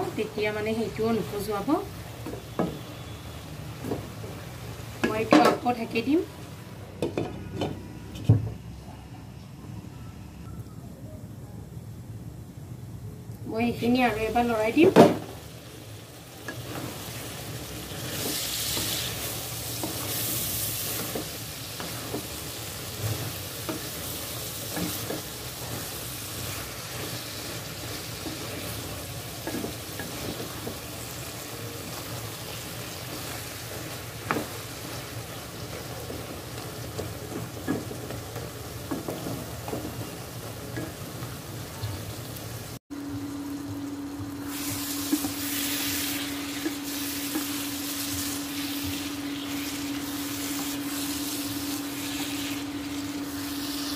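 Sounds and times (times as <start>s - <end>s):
vegetables sizzling in a pan: 0.0s - 7.1s, 13.5s - 53.9s
spatula knocking and scraping a pan: 5.0s - 5.8s, 17.9s - 31.1s, 32.9s - 41.2s, 46.6s - 49.0s.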